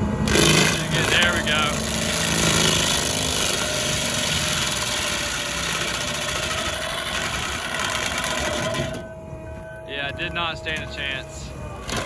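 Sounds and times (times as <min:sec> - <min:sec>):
diesel engine running under load: 0:00.0 - 0:12.0
mulcher drum grinding stump: 0:00.2 - 0:09.1.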